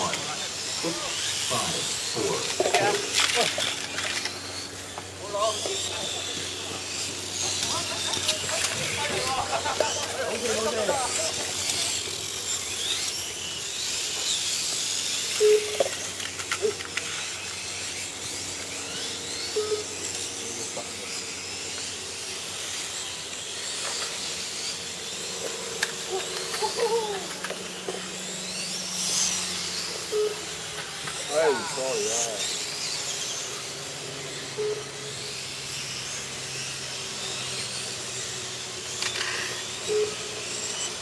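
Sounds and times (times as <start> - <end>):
electric motors whining: 0.0 - 41.0.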